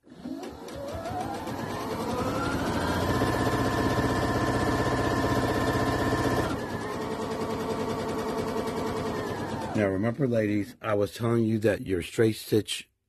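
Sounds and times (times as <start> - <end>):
sewing machine stitching: 0.0 - 10.1.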